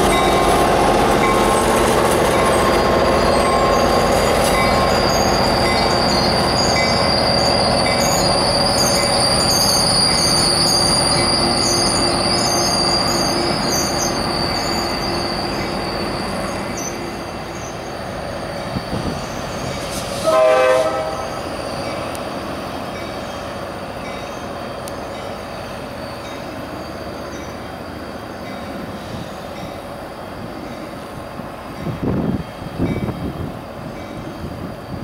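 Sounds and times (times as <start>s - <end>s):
train rumbling along track: 0.0s - 35.0s
train horn blast: 20.2s - 21.4s.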